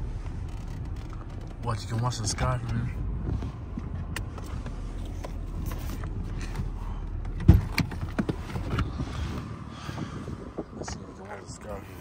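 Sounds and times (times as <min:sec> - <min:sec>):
car engine idling: 0:00.0 - 0:12.0
car door clicks and knocks: 0:06.6 - 0:08.9
car door thump: 0:07.4 - 0:08.9.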